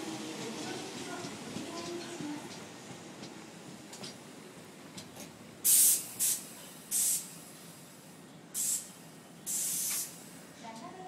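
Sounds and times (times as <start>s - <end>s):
low train running rumble: 0.0s - 11.0s
train brakes hissing: 5.6s - 10.5s.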